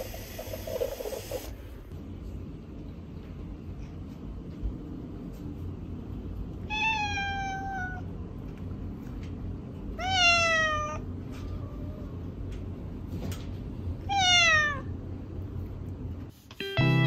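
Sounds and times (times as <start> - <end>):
cat meowing: 6.7 - 8.1, 10.0 - 12.1, 14.0 - 14.9.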